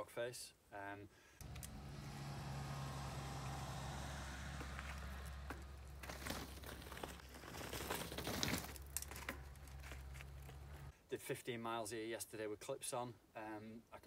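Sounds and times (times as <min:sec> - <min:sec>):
bike tyres crunching over gravel: 0:01.7 - 0:10.9.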